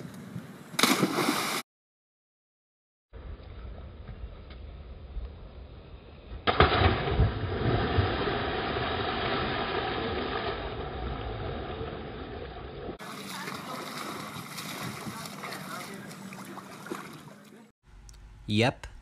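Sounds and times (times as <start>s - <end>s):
loud splash into pool: 0.8s - 1.6s, 6.5s - 11.1s
water sloshing from swimming: 9.2s - 17.7s.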